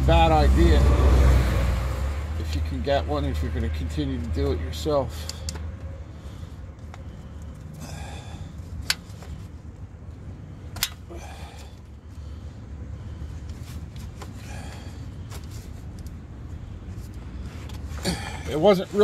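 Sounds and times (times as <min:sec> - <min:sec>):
steady low rumble: 0:00.0 - 0:19.0
oil filter wrench clicks: 0:08.8 - 0:09.0, 0:10.8 - 0:11.0
soft rustles: 0:13.2 - 0:14.4, 0:15.2 - 0:18.0.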